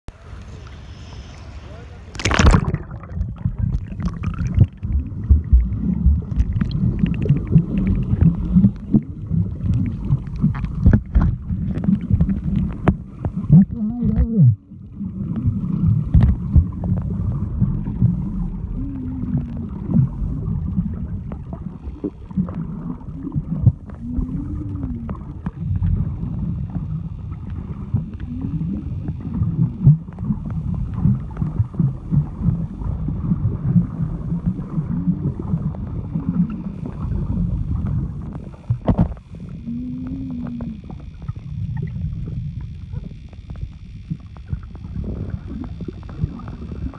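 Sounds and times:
low wavering gurgles: 0:00.1 - 0:46.9
underwater rumbling and sloshing: 0:00.1 - 0:46.9
splash into water: 0:02.1 - 0:04.7.

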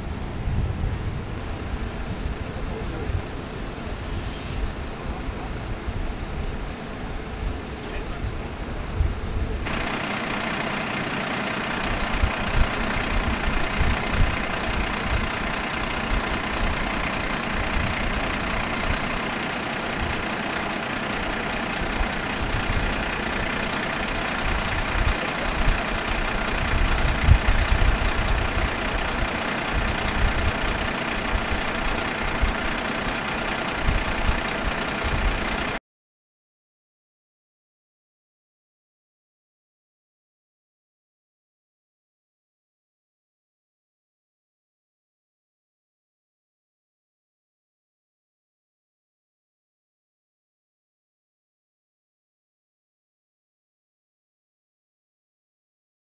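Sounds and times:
steady whine: 0:00.0 - 0:35.8
truck engine and pump running: 0:00.0 - 0:35.8.

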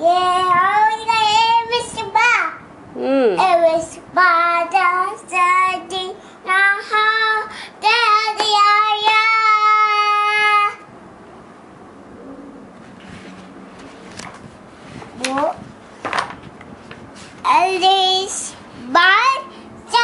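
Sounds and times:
toddler boy singing: 0:00.0 - 0:02.6, 0:03.4 - 0:10.9, 0:17.4 - 0:20.0.

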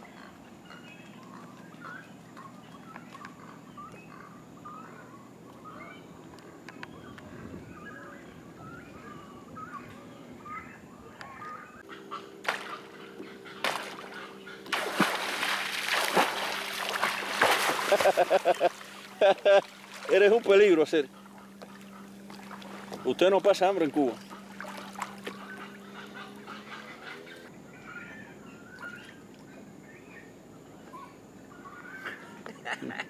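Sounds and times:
bird calls chattering: 0:00.0 - 0:14.7, 0:20.1 - 0:29.2
low motor hum: 0:00.0 - 0:33.0.

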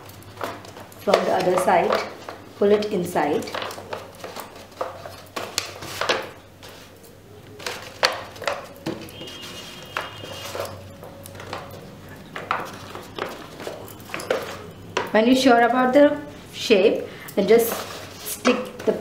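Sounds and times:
stiff paper crinkling: 0:00.0 - 0:15.1, 0:17.4 - 0:19.0.

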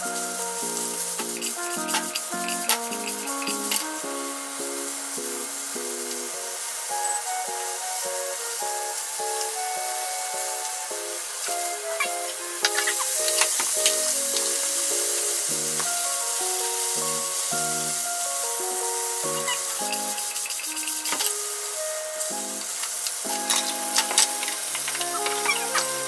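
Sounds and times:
background music: 0:00.0 - 0:26.0
vegetables sizzling in frying pan: 0:00.0 - 0:26.0.

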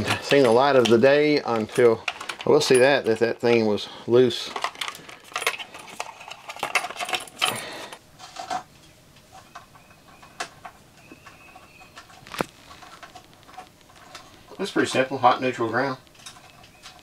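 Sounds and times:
tape peeling crackly rustling: 0:11.9 - 0:14.5.

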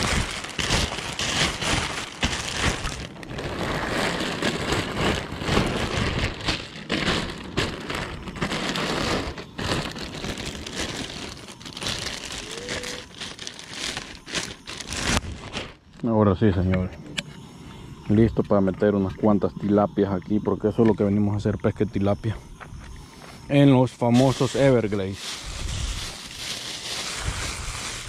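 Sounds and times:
plastic bag crinkling: 0:00.0 - 0:16.1, 0:24.0 - 0:28.0.

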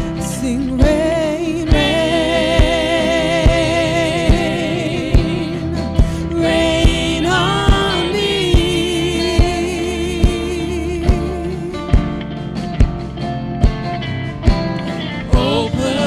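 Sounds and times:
women singing with vibrato: 0:00.0 - 0:12.2, 0:15.2 - 0:16.0
gospel band playing: 0:00.0 - 0:16.0
kick drum beat: 0:11.1 - 0:12.2, 0:12.8 - 0:14.8.

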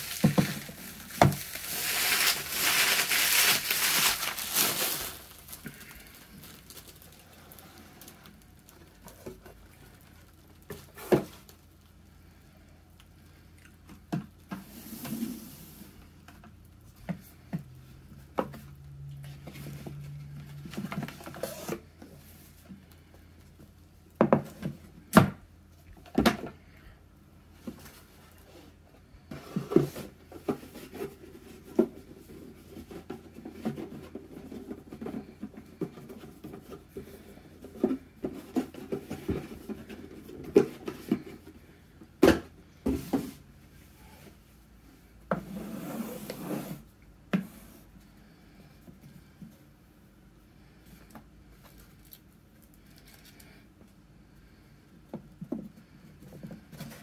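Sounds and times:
rubbing and rustling: 0:00.0 - 0:11.6.

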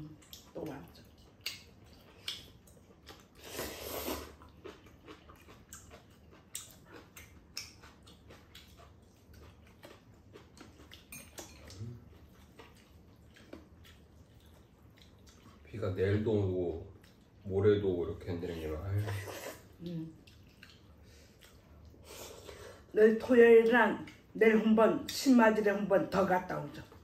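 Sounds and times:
soft chewing: 0:00.0 - 0:25.3, 0:26.1 - 0:27.0
noodles slurped: 0:03.2 - 0:05.6.

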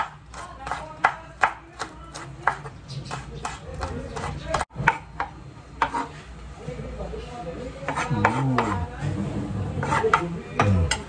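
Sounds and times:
knife chopping on wooden board: 0:00.0 - 0:06.1, 0:07.9 - 0:08.8, 0:09.8 - 0:10.8.

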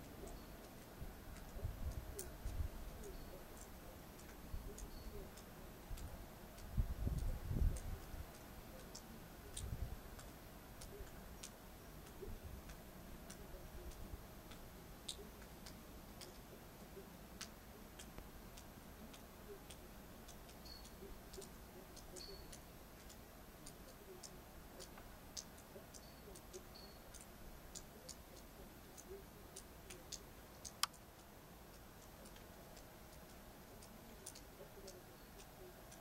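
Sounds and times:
small ticks and clicks: 0:00.0 - 0:36.0
low rumble of wind: 0:00.9 - 0:03.0, 0:05.8 - 0:08.3, 0:09.5 - 0:10.2.

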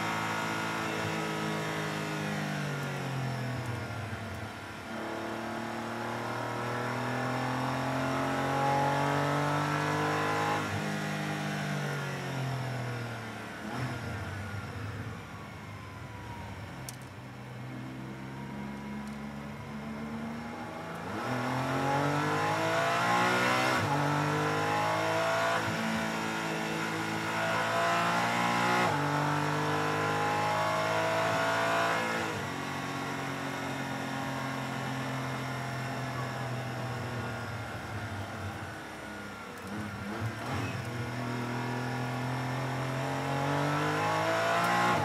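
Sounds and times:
racing car engine accelerating: 0:05.0 - 0:11.5, 0:20.0 - 0:34.7, 0:39.6 - 0:45.0.

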